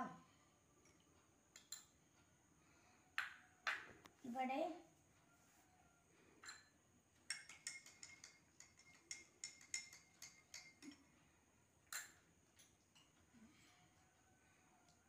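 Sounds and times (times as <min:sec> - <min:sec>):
spoon clinking against glass: 0:00.8 - 0:02.0, 0:06.4 - 0:11.1, 0:11.9 - 0:12.3.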